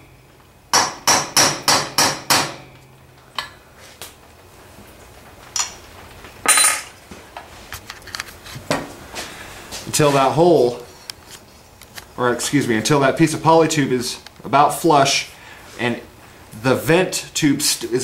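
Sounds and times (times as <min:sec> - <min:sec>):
hammer striking a punch: 0:00.7 - 0:02.8.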